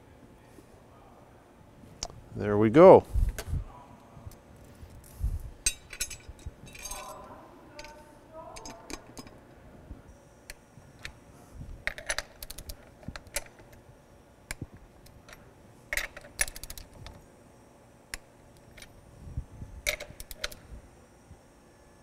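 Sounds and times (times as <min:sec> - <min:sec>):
metal clinks of nuts and wrench: 0:05.7 - 0:07.2.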